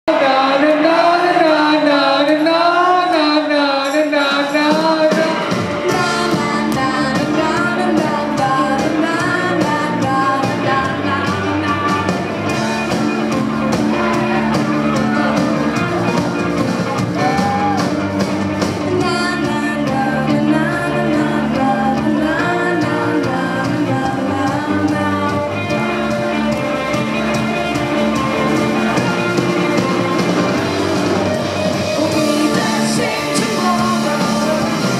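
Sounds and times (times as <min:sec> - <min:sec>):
woman singing lead vocal: 0:00.1 - 0:12.3, 0:18.8 - 0:26.1, 0:31.9 - 0:34.9
live rock band: 0:00.1 - 0:34.9.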